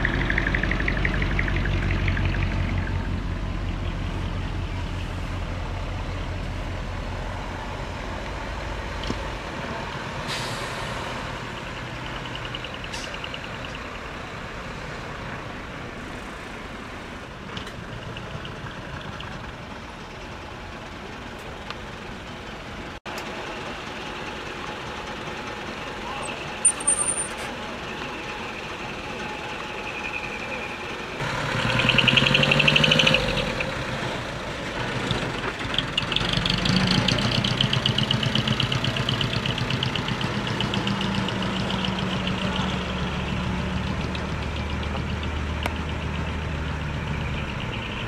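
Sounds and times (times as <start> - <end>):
diesel truck engines rumbling: 0.0 - 48.0
air brake hiss: 10.2 - 11.4.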